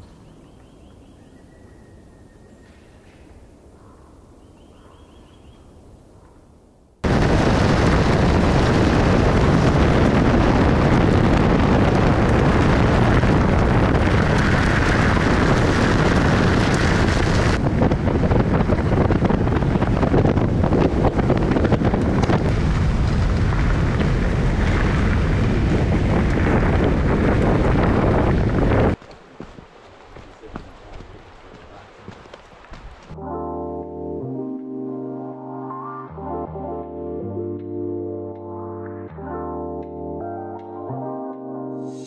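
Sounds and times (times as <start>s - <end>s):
wind buffeting microphone: 7.0s - 33.2s
tyres on gravel road: 7.1s - 33.2s.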